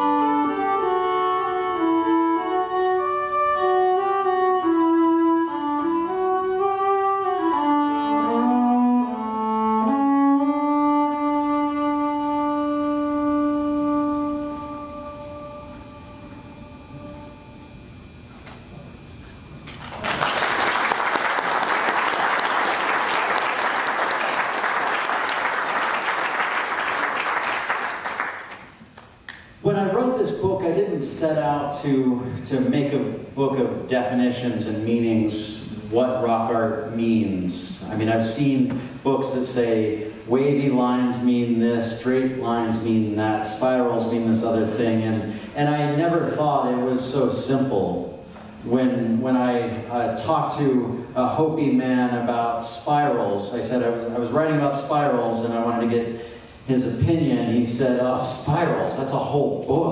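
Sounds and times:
solo violin slow melody: 0.0s - 17.7s
audience applause: 19.8s - 29.1s.

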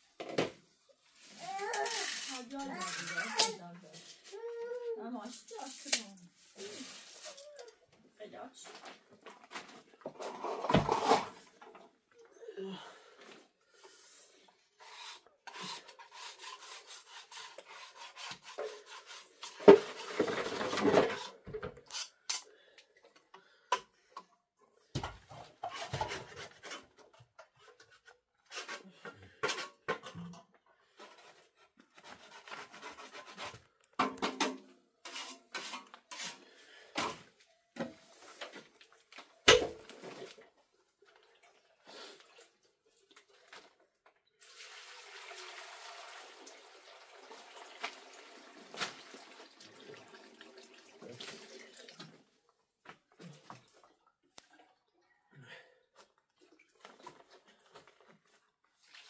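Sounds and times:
plaster scraping in metal basin: 1.9s - 4.2s, 10.0s - 11.6s, 14.8s - 22.3s, 25.4s - 37.2s.

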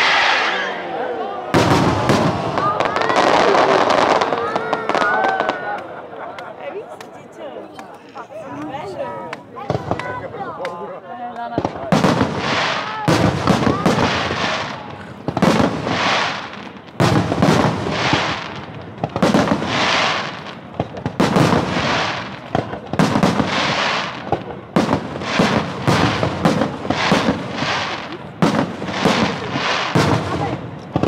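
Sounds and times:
firework shells bursting: 11.6s - 31.0s.

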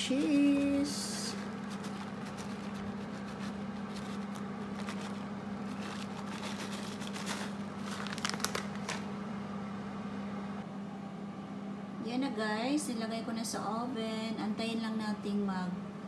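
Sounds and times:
plastic bag crinkling: 0.0s - 9.1s
steady low hum: 0.0s - 16.0s.

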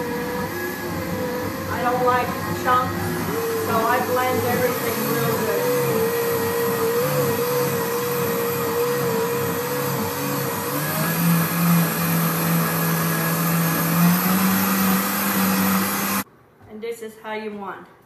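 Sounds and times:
blender running: 0.0s - 16.3s.

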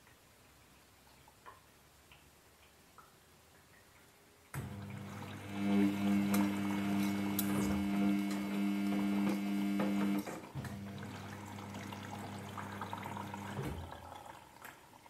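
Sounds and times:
washing machine motor humming: 4.6s - 14.5s
water swishing in drum: 10.0s - 15.0s.

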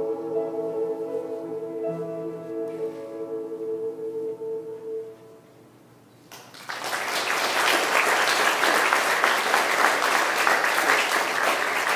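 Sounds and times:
audience applause: 6.3s - 11.9s.

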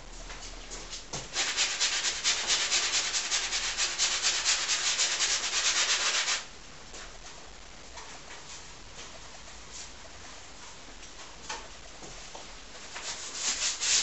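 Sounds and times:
paint scrubbing on canvas: 1.3s - 6.4s, 13.0s - 14.0s.

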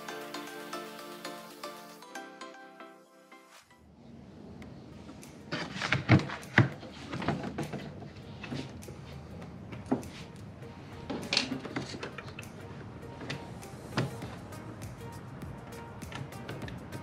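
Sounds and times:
parts knocking and rattling: 5.4s - 10.4s, 11.1s - 12.6s.

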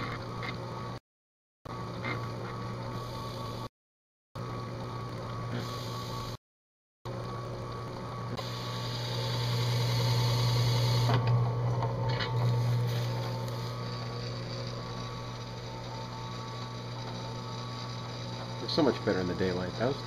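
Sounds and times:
drill press motor humming: 7.1s - 20.0s.

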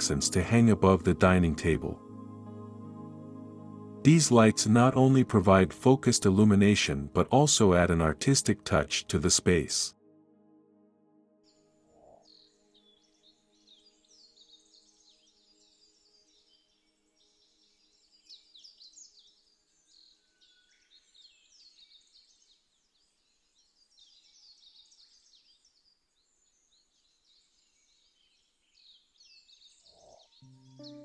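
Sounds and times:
soft sustained music tones: 0.0s - 18.6s, 30.4s - 31.0s
small birds chirping in chorus: 11.9s - 31.0s.

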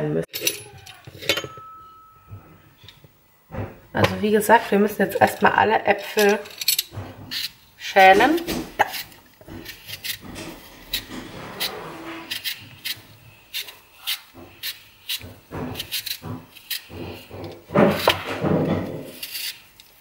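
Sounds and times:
peeler scraping apple skin: 4.0s - 20.0s.

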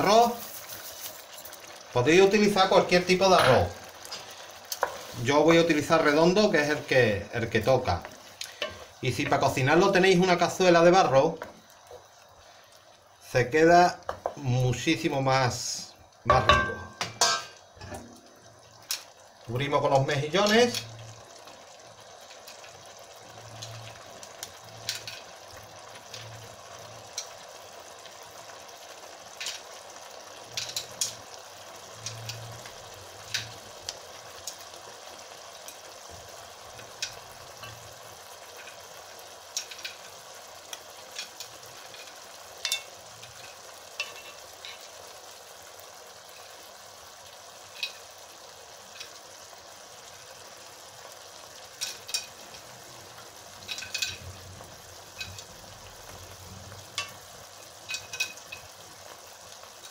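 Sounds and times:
food simmering in a pan: 0.0s - 59.9s
shells clicking against a pan: 30.5s - 31.2s, 39.5s - 40.1s, 40.7s - 44.9s, 47.7s - 48.1s, 51.7s - 52.6s, 53.6s - 54.3s, 55.1s - 55.5s, 57.8s - 58.8s.

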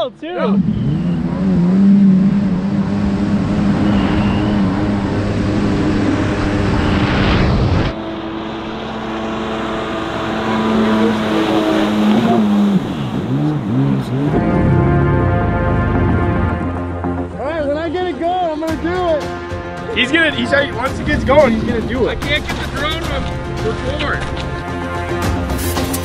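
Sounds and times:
jet ski engine running: 0.5s - 6.9s, 7.9s - 17.8s.

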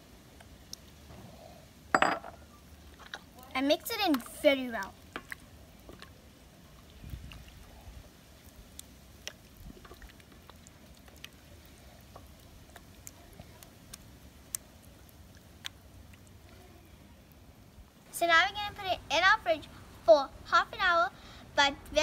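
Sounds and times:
wet squishing of chicken in buttermilk: 0.4s - 1.1s, 2.6s - 17.8s
small clicks and ticks: 8.4s - 16.6s.

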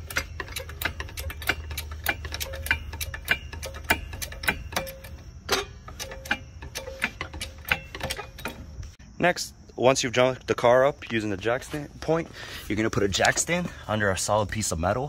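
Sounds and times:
hydraulic jack pumping clicks: 0.0s - 9.0s.

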